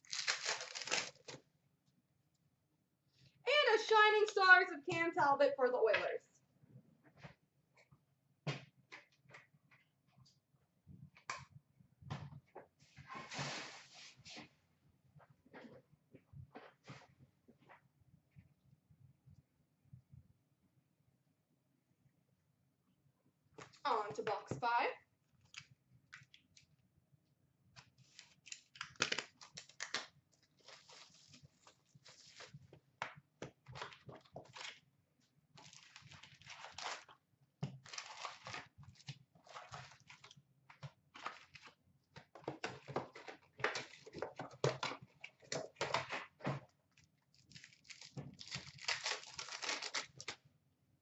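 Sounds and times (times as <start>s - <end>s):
card packs crackling and tearing: 0.0s - 1.4s, 28.0s - 31.4s, 35.6s - 37.1s, 37.7s - 40.3s, 41.2s - 41.7s, 47.4s - 50.4s.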